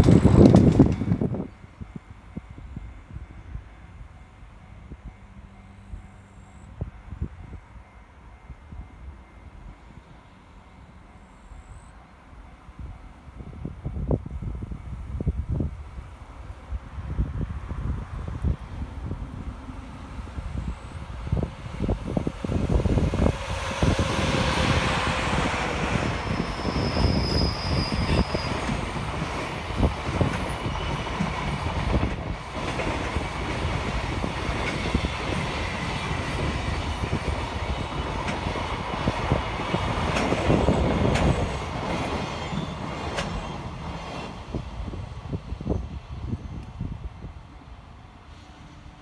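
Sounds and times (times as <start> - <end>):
train wheels clattering over rail joints: 0.0 - 1.3, 28.0 - 44.2
electric locomotive passing: 0.0 - 49.0
high wheel squeal: 26.0 - 29.7.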